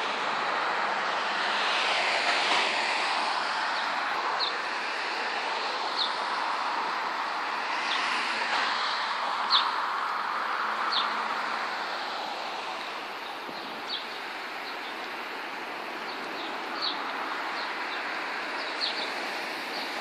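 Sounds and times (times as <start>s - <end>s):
street ambience hiss: 0.0s - 20.0s
small birds chirping: 5.9s - 6.3s, 9.5s - 9.8s, 10.9s - 11.2s, 13.2s - 20.0s.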